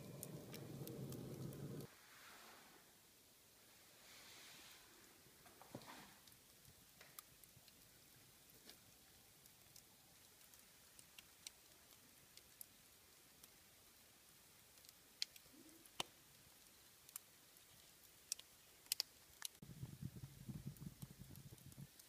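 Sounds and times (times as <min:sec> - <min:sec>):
low muffled rumble: 0:00.0 - 0:01.9, 0:19.6 - 0:21.9
fire embers crackling: 0:00.0 - 0:22.0.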